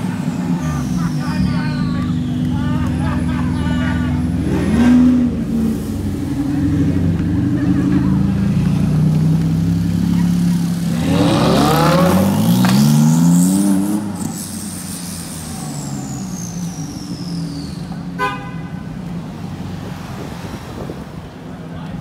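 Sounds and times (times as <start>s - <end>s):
sports car engine revving: 0.0s - 20.9s
street traffic: 0.0s - 22.0s
car horn toot: 18.2s - 19.0s.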